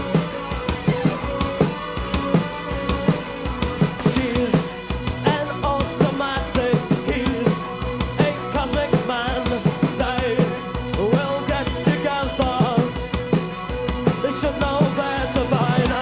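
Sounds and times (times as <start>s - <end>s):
drum kit steady beat: 0.0s - 16.0s
live rock band playing: 0.0s - 16.0s
man singing: 3.9s - 13.0s, 14.1s - 16.0s.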